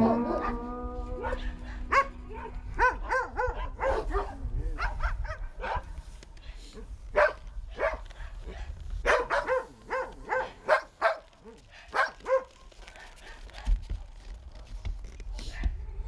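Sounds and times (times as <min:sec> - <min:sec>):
dogs barking: 0:00.0 - 0:06.0, 0:07.1 - 0:13.6.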